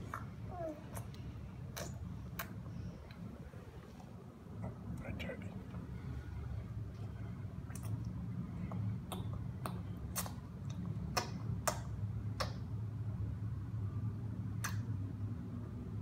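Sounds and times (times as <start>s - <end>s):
steady low hum: 0.0s - 16.0s
baby mouth wet clicks and smacks: 0.9s - 3.2s, 7.7s - 12.7s, 14.6s - 15.0s.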